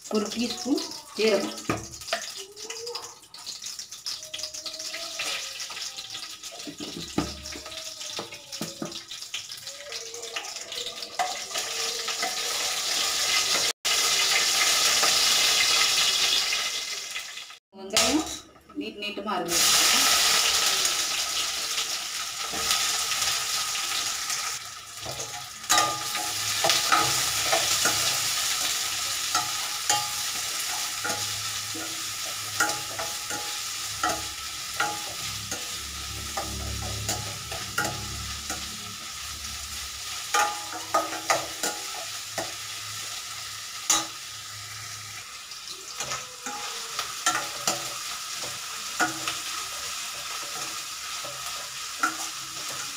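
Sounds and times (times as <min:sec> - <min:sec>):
onions sizzling in a pan: 0:00.0 - 0:52.9
metal spoon scraping a pan: 0:19.6 - 0:52.9.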